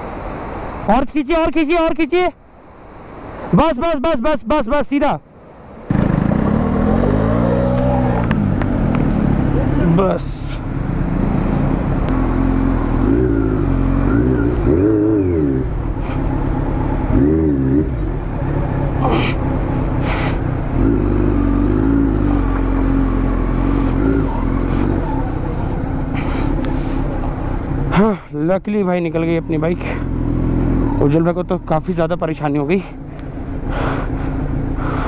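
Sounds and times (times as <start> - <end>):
motorcycle engine revving: 5.9 - 27.5, 29.2 - 32.0.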